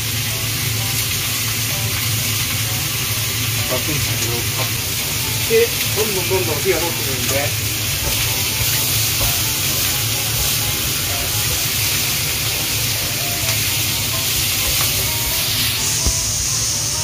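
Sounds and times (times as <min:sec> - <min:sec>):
meat sizzling in a frying pan: 0:00.0 - 0:17.0.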